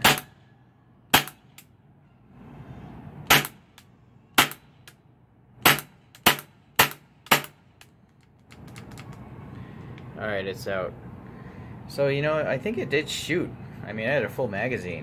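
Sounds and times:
airsoft pistol shots: 0.0s - 0.3s, 1.1s - 1.4s, 3.3s - 3.6s, 4.4s - 4.6s, 5.6s - 7.6s.

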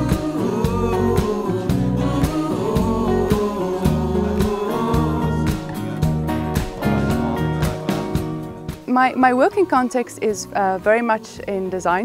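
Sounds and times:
background music with beat and bass: 0.0s - 8.9s.

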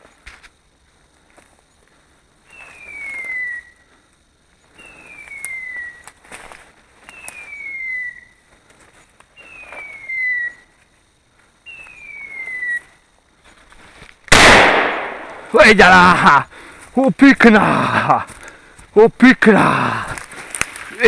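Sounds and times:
twigs snapping underfoot: 5.2s - 7.4s, 20.1s - 21.0s.

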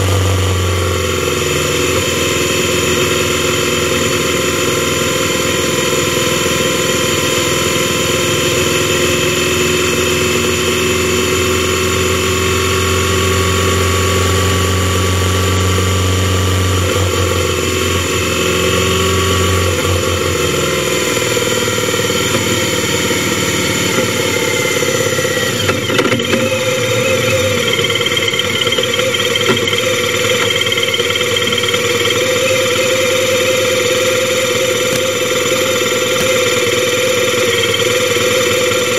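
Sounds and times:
motorcycle engine running: 0.0s - 38.9s
clunks: 25.3s - 31.5s.

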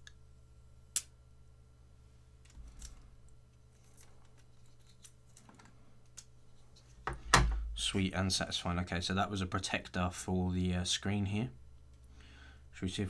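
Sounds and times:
faint crackling and small clicks: 2.4s - 7.0s, 11.7s - 12.2s.

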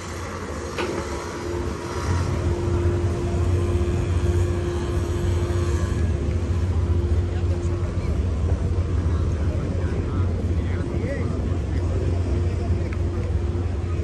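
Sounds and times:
low engine drone: 0.0s - 14.0s.

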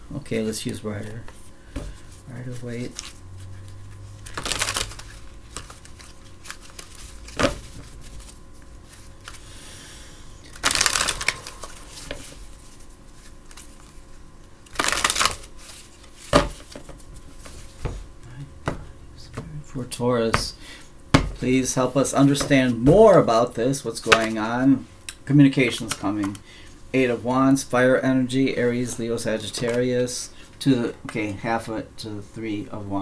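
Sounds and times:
cards shuffling: 0.6s - 9.5s, 10.5s - 18.1s.

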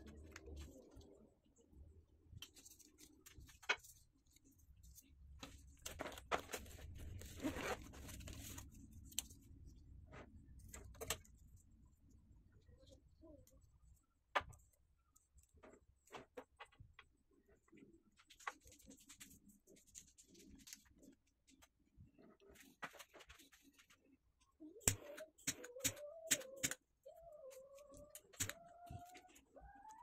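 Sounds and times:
clicks and rustles of wires: 2.3s - 11.7s, 13.2s - 26.9s.

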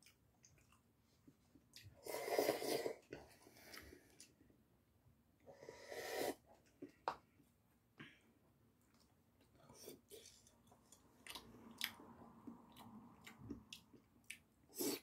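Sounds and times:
person slurping noodles: 2.0s - 3.2s, 5.5s - 6.4s, 14.7s - 15.0s.

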